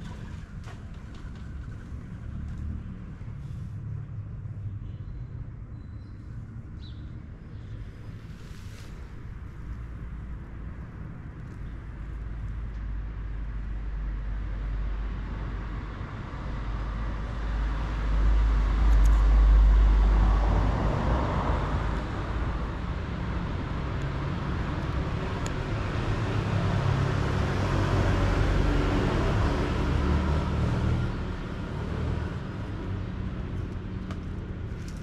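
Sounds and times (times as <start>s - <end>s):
road traffic rumble: 0.0s - 35.0s
vehicle passing: 17.4s - 35.0s.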